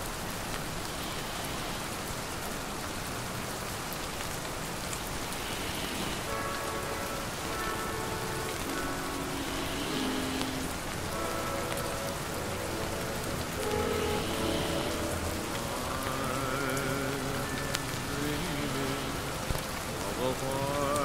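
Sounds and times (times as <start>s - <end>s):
rain falling steadily: 0.0s - 21.0s
quiet instrumental love song: 6.2s - 21.0s.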